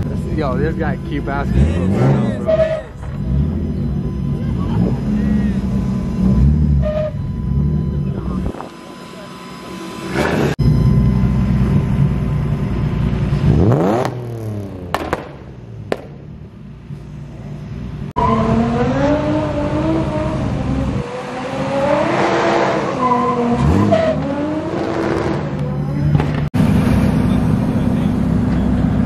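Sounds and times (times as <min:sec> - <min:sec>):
car engine revving: 0:00.0 - 0:29.0.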